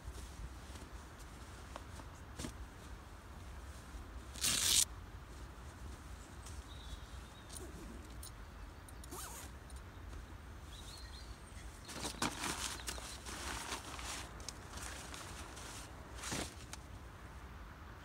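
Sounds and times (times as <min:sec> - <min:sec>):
bedding and canvas rustling: 0:11.8 - 0:16.9.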